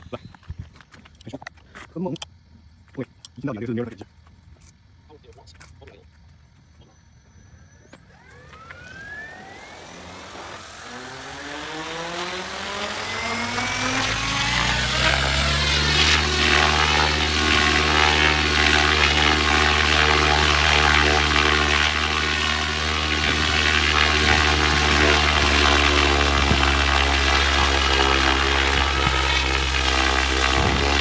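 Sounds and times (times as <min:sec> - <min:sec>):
model helicopter rotor whine: 0:06.4 - 0:31.0.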